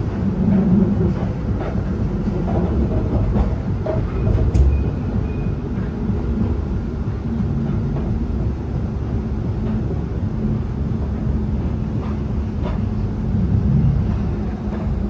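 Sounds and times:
tram wheels rumbling on rail: 0.0s - 15.0s.

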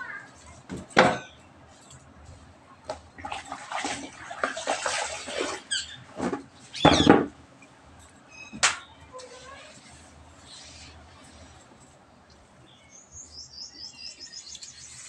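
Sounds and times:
water sloshing in plastic bucket: 2.8s - 7.4s.

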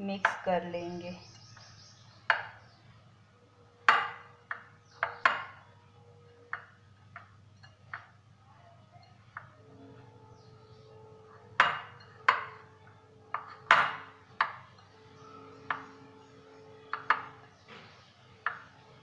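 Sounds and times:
glass bowl clinking: 8.8s - 18.9s.

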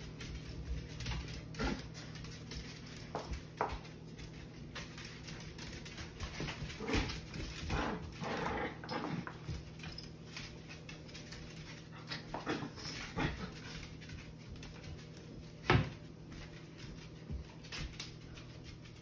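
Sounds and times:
dog feet scuffing on tiles: 0.0s - 19.0s
dogs play noises: 0.0s - 19.0s.

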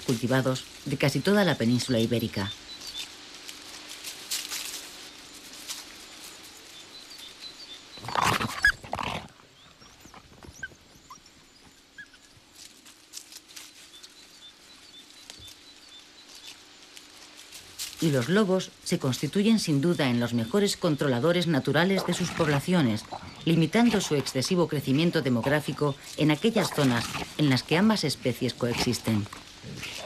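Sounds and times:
rustling of dry brush: 0.0s - 10.1s, 10.8s - 30.0s
wild boar grunting: 8.0s - 11.1s, 21.4s - 30.0s.

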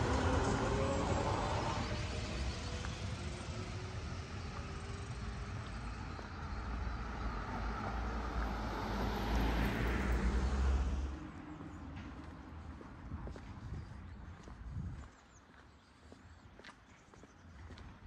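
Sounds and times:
car driving past: 0.0s - 12.8s.

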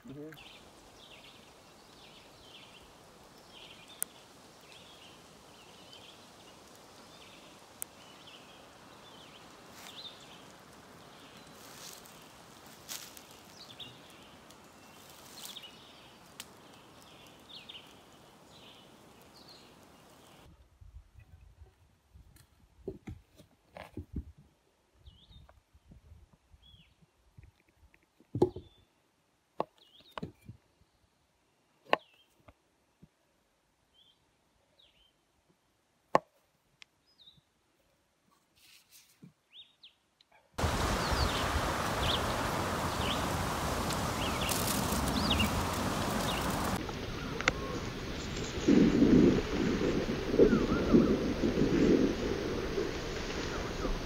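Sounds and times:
birds chirping: 40.6s - 54.0s.

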